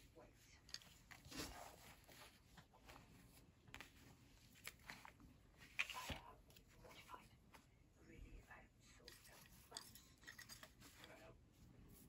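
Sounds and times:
fabric rustling: 0.8s - 7.7s.

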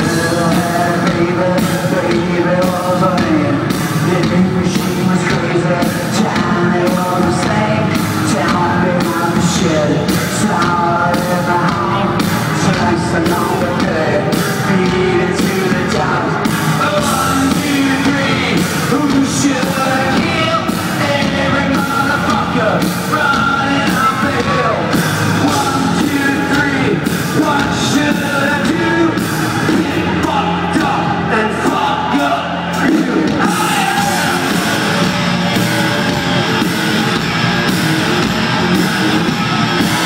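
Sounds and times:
distorted guitars: 0.0s - 40.0s
live heavy rock band: 0.0s - 40.0s
person singing: 0.0s - 40.0s
pounding drums: 0.0s - 40.0s.

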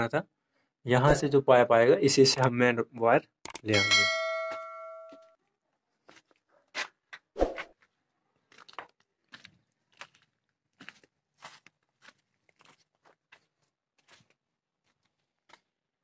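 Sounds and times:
footsteps crunching on gritty ground: 6.0s - 15.8s.

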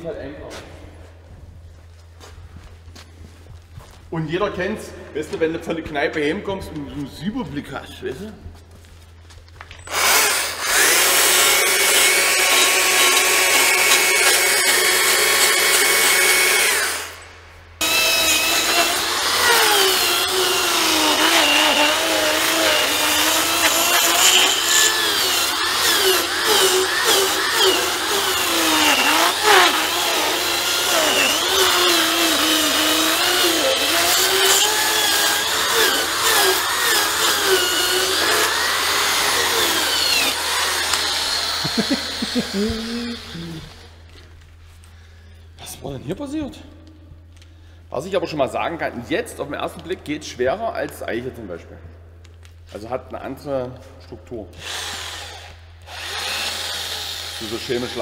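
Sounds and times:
rotary tool cutting wood: 9.8s - 17.2s, 17.8s - 43.8s, 54.6s - 58.0s.

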